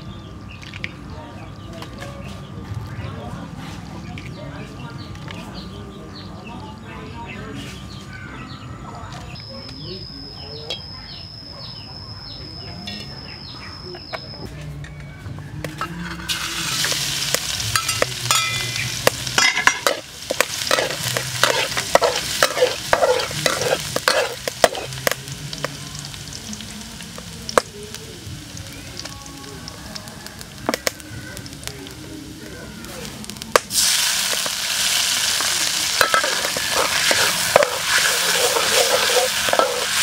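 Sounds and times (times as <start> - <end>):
spatula scraping a wok: 15.8 - 26.2, 33.7 - 40.0
food sizzling in oil: 16.2 - 40.0.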